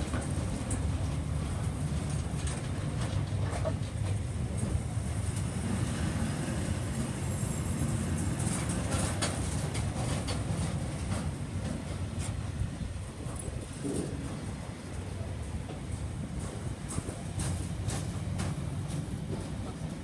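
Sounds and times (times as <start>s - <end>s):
train wheels rumbling on rail: 0.0s - 20.0s
wagons clanking: 6.9s - 20.0s.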